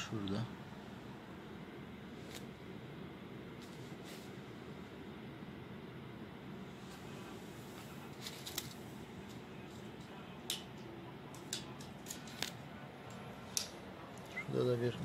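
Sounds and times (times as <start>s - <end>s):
steady low hiss: 0.0s - 15.0s.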